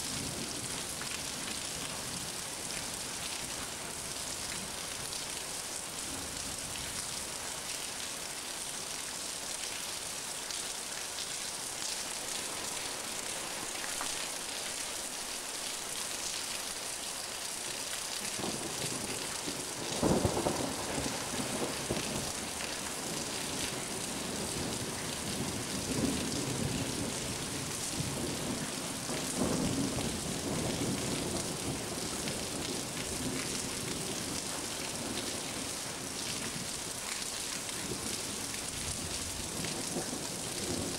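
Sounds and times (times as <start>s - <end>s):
rain hissing: 10.0s - 40.9s.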